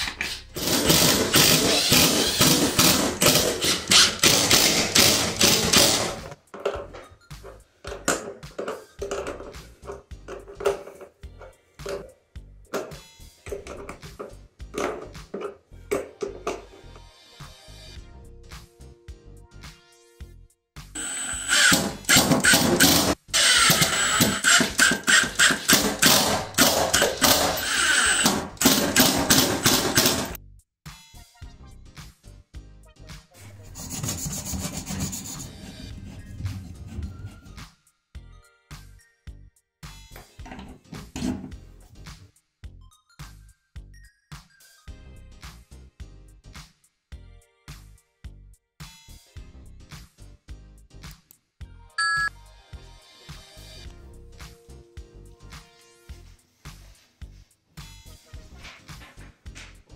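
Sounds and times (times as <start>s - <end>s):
impact driver hammering: 0.6s - 6.3s, 21.0s - 30.4s.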